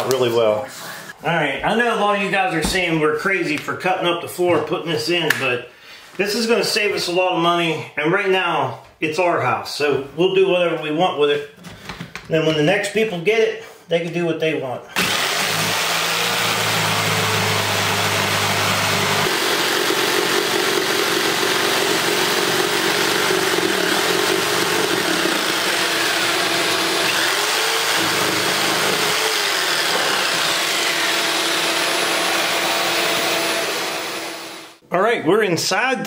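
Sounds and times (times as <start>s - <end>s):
jigsaw cutting wood: 15.0s - 34.8s
shop vacuum running: 15.0s - 34.8s.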